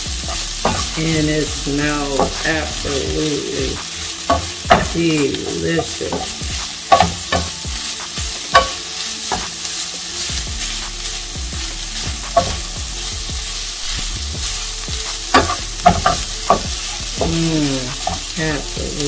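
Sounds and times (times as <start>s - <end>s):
food sizzling in a skillet: 0.0s - 19.0s
spoon knocking on pan: 0.3s - 1.0s, 2.1s - 9.5s, 12.4s - 12.8s, 15.3s - 18.8s.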